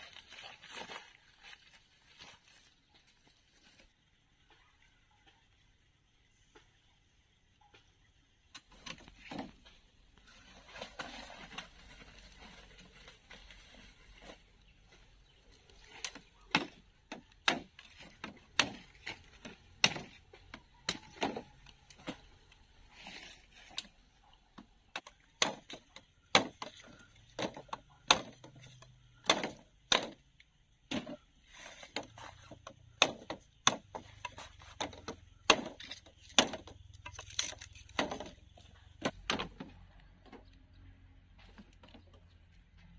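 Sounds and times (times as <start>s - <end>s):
rustling: 8.7s - 16.5s.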